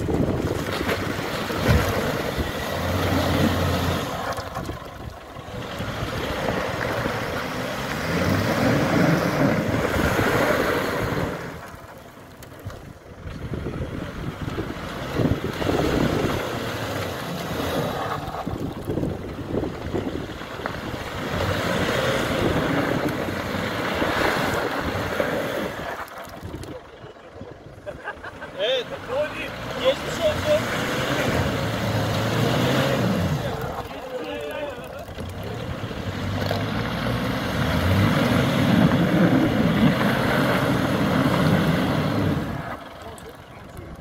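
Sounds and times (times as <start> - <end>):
wind buffeting microphone: 0.0 - 2.6, 12.6 - 17.0, 18.1 - 28.0
engine running hard: 0.0 - 44.0.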